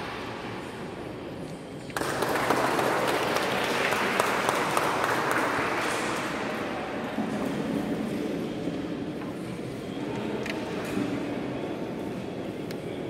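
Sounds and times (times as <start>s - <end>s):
crowd clapping: 1.9s - 6.9s.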